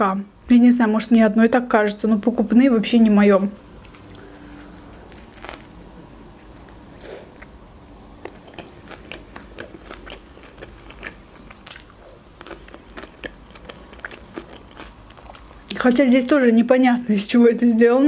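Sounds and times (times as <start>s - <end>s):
person chewing a burger: 3.8s - 7.6s, 8.2s - 15.6s.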